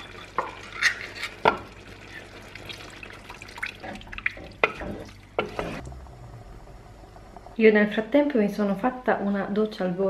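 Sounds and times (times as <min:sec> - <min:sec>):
liquid pouring and dripping: 0:00.0 - 0:05.5
spatula stirring a pot: 0:00.0 - 0:05.8
noodles simmering: 0:00.0 - 0:07.6.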